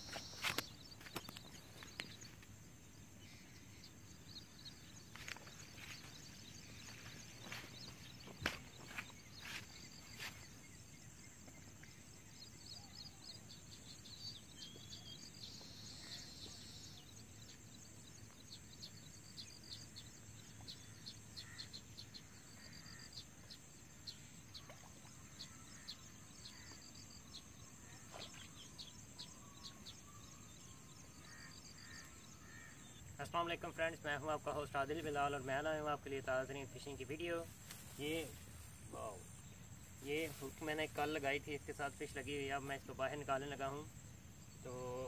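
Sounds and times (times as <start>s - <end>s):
small birds chirping: 0.0s - 45.0s.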